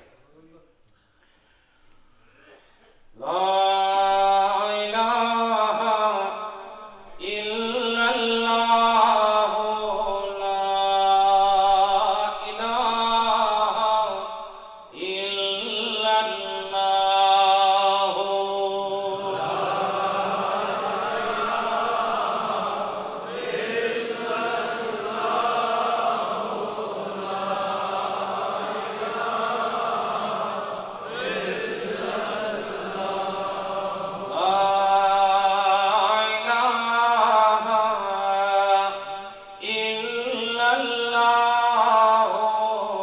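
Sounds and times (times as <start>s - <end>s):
group of men chanting: 16.8s - 36.2s.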